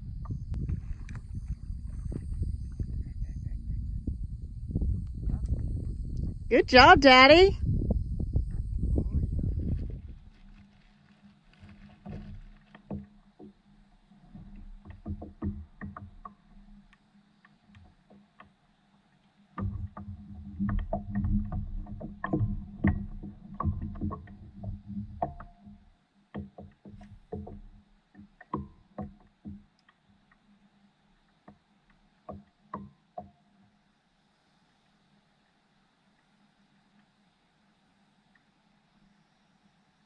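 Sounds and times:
water lapping against hull: 0:00.0 - 0:33.7
knocks and taps on paddleboard: 0:11.4 - 0:18.6, 0:19.5 - 0:30.6, 0:31.2 - 0:33.7
low rumbling and knocking: 0:19.6 - 0:25.5.

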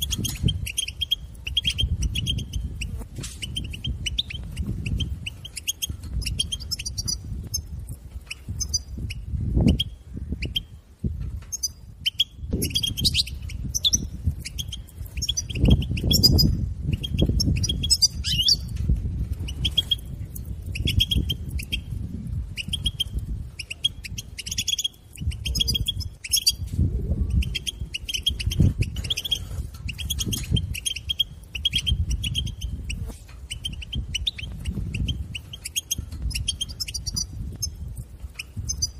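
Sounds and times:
goldfinch twittering: 0:00.0 - 0:10.7, 0:11.5 - 0:18.8, 0:19.4 - 0:21.9, 0:22.5 - 0:26.7, 0:27.3 - 0:38.9.

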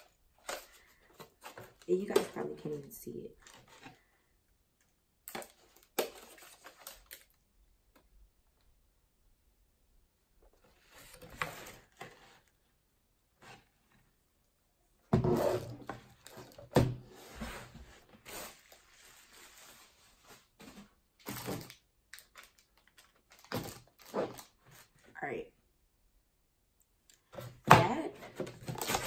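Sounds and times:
cardboard rustling and scraping: 0:00.0 - 0:02.5, 0:03.4 - 0:04.1, 0:10.5 - 0:12.6, 0:15.1 - 0:21.8, 0:23.5 - 0:25.0, 0:27.3 - 0:29.0.

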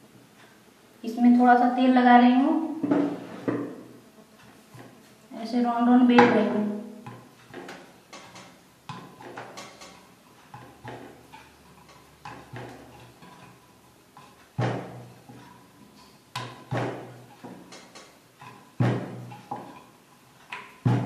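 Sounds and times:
rolling pin knocking on counter: 0:12.2 - 0:13.4, 0:14.2 - 0:15.2, 0:16.4 - 0:19.8, 0:20.6 - 0:21.0.

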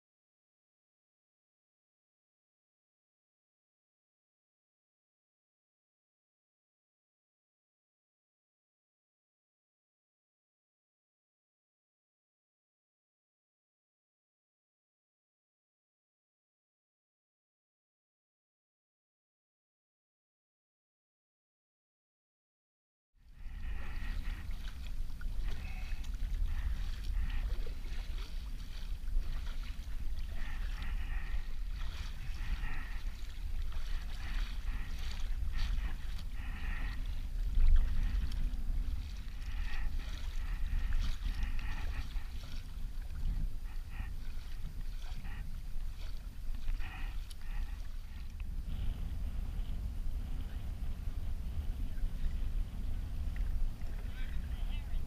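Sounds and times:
steady low rumble: 0:23.2 - 0:55.0
water lapping on hull: 0:23.2 - 0:55.0
paddle strokes splashing: 0:23.3 - 0:55.0.

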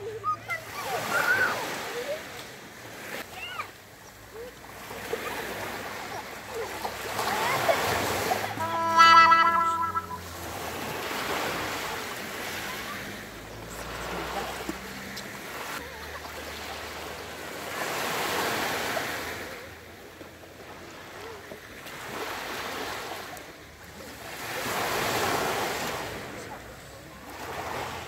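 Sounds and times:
sea waves washing up a shore: 0:00.0 - 0:28.0.

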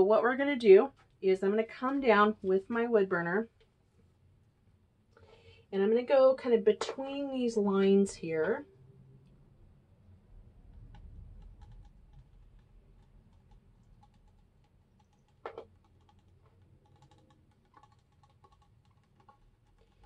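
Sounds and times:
faint ticks and crackling: 0:10.6 - 0:20.0.

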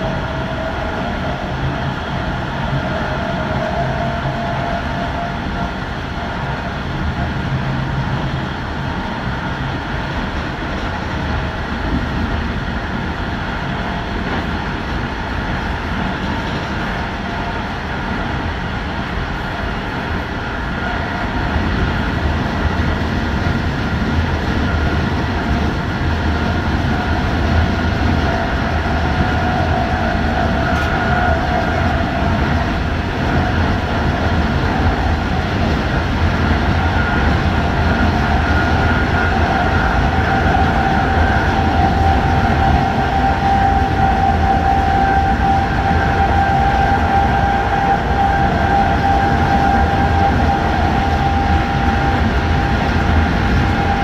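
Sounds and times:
train wheels on rail: 0:00.0 - 0:54.0.

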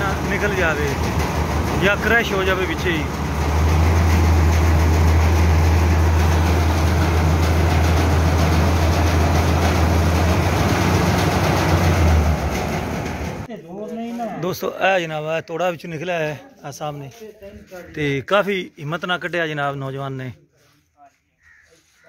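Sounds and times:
rushing noise: 0:00.0 - 0:13.5.

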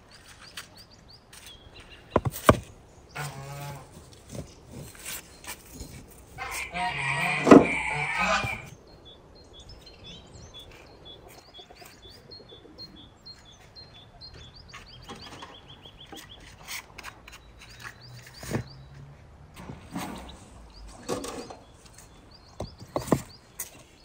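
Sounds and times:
small birds chirping: 0:00.0 - 0:24.0
bricks being set down: 0:02.1 - 0:02.8.

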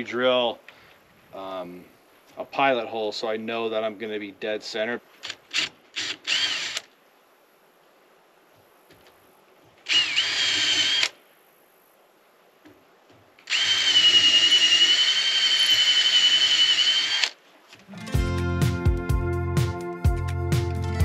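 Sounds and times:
cordless drill whining: 0:05.5 - 0:06.9, 0:09.9 - 0:11.2, 0:13.4 - 0:17.4.

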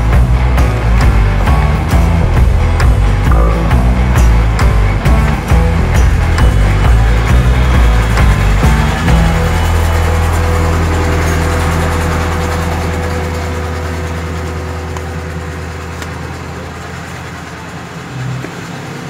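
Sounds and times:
electronic music bass drone: 0:00.0 - 0:19.0.

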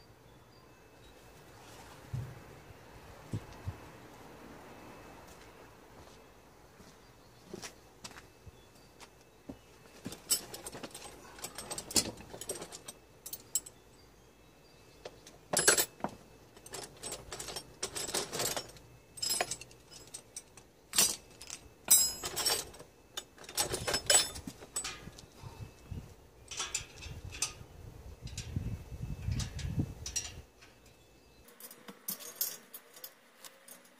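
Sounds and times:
metal tools clinking: 0:09.8 - 0:14.0, 0:14.8 - 0:25.4, 0:26.4 - 0:28.6, 0:29.3 - 0:33.9.

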